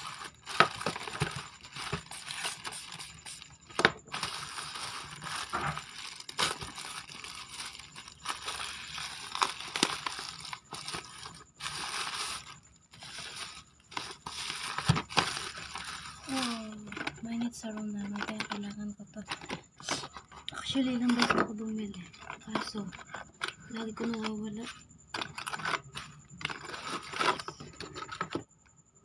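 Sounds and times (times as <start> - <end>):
plastic bag crinkling: 0.0 - 18.7, 19.3 - 28.4.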